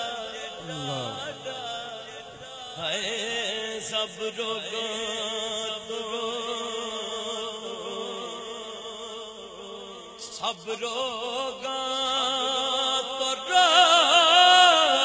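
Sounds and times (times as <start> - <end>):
man singing long notes: 0.0 - 5.0.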